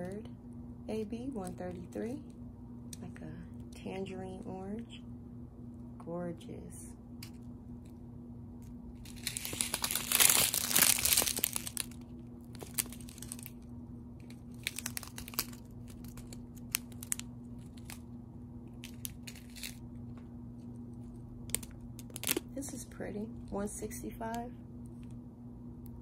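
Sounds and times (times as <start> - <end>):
plastic bags crinkling: 9.0 - 18.0, 18.8 - 19.8, 21.5 - 22.6.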